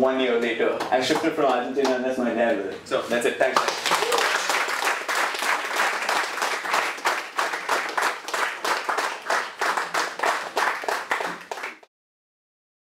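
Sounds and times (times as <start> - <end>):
audience applauding: 3.5 - 11.9.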